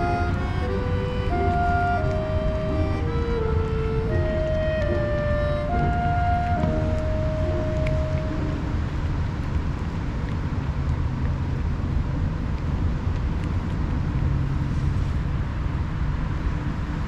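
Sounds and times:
low outdoor rumble: 0.0s - 17.0s
cats chewing dry kibble: 8.9s - 15.4s.

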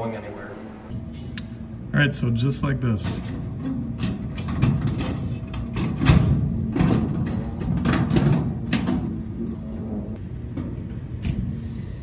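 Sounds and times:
sheet metal rattling and scraping: 3.1s - 9.6s.

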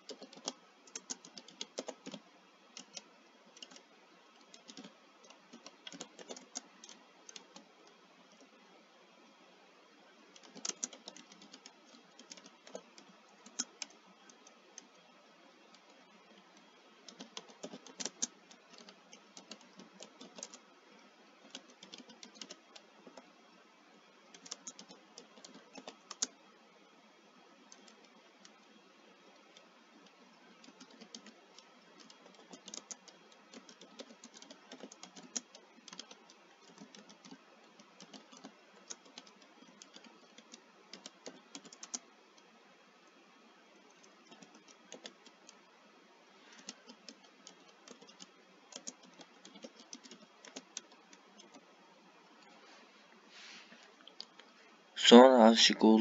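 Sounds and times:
typing on computer keyboard: 0.0s - 8.5s, 10.3s - 20.6s, 21.4s - 23.3s, 24.3s - 26.4s, 27.6s - 28.6s, 29.3s - 42.5s, 43.8s - 45.7s, 46.5s - 51.6s.

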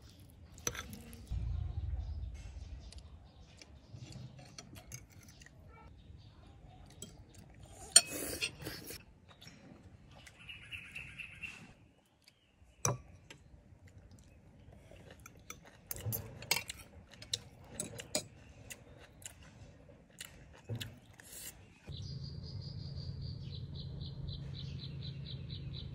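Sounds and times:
low hum: 1.0s - 5.2s.

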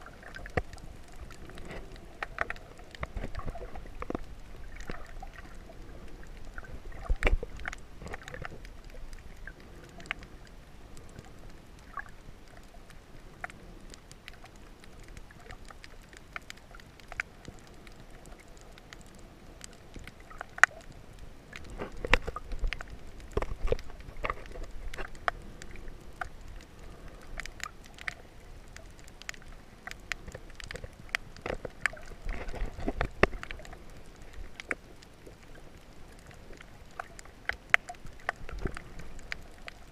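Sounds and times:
low thumping water surges: 0.0s - 39.9s
muffled underwater water wash: 0.0s - 39.9s
underwater clicks and pops: 0.2s - 5.5s, 6.5s - 10.2s, 19.6s - 26.4s, 29.2s - 34.9s.

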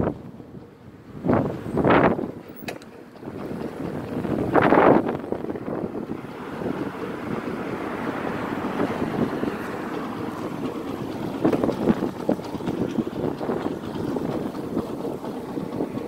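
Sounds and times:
motorcycle engine running: 0.0s - 16.0s
wind buffeting microphone: 0.0s - 16.0s.

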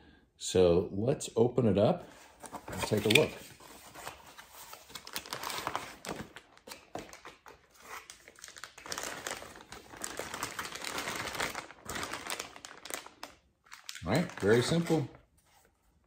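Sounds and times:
plastic bag crinkling: 4.8s - 15.2s.

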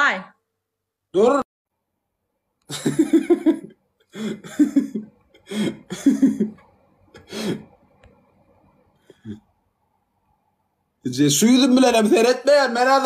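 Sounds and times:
man laughing: 2.7s - 6.6s, 7.2s - 7.6s.

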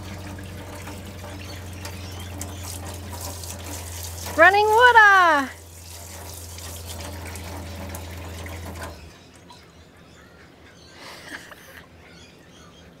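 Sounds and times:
water running from tap: 0.0s - 9.1s
water pump humming: 0.0s - 9.6s.

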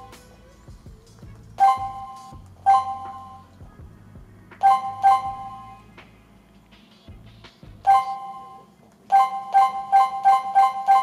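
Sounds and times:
keypad two-tone beeps: 1.6s - 3.4s, 4.6s - 5.7s, 7.9s - 11.0s.

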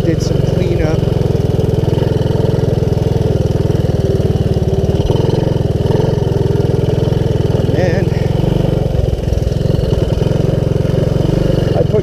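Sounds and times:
single-cylinder engine running: 0.0s - 12.0s.

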